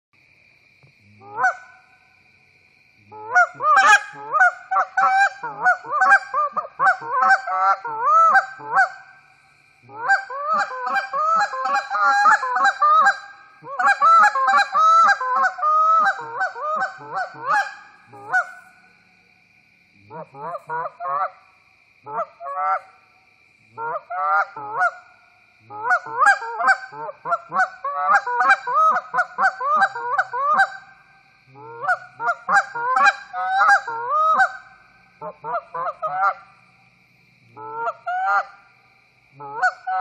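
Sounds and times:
goose call honks and clucks: 0:01.2 - 0:01.8, 0:03.1 - 0:09.1, 0:09.9 - 0:18.6, 0:20.1 - 0:21.4, 0:22.1 - 0:22.9, 0:23.8 - 0:25.0, 0:25.7 - 0:30.9, 0:31.5 - 0:36.5, 0:37.6 - 0:38.6, 0:39.4 - 0:40.0
faint high whine: 0:07.9 - 0:11.9.

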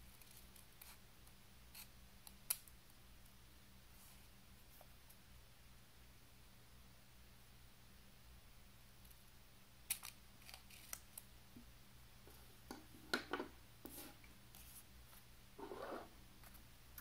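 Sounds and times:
faint steady hum: 0:00.0 - 0:17.0
scissors snipping paper: 0:09.9 - 0:11.2.

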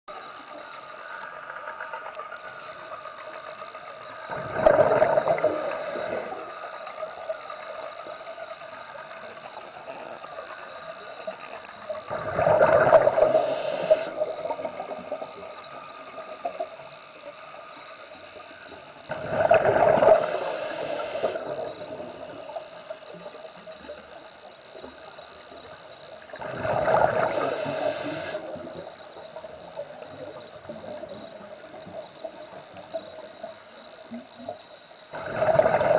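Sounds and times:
faint steady hum: 0:00.1 - 0:35.9
underwater regulator breathing bubbles: 0:26.6 - 0:28.5.

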